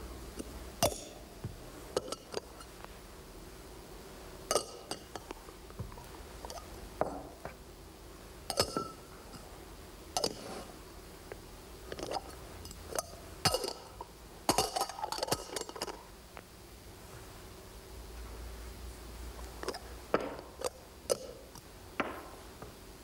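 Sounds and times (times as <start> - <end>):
cups clinking together: 8.5 - 9.0.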